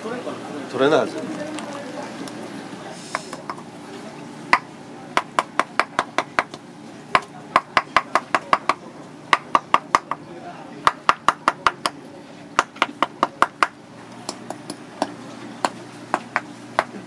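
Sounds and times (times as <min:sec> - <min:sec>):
shell knocking on concrete: 0:07.2 - 0:10.2.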